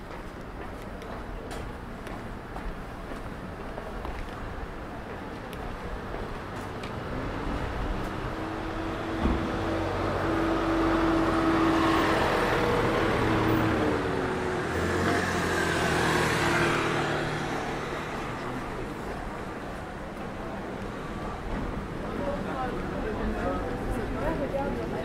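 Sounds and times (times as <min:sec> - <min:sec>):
motor traffic passing: 0:06.2 - 0:22.2.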